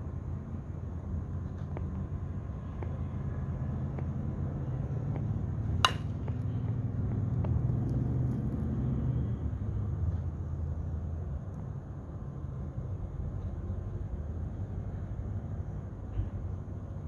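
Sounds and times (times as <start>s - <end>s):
bat striking ball with ping: 5.8s - 6.4s.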